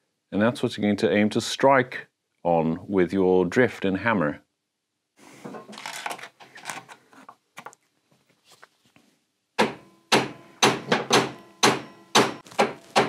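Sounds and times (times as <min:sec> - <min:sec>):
faint handling sounds: 0:05.2 - 0:09.3
hammer striking steel drift: 0:09.6 - 0:12.4.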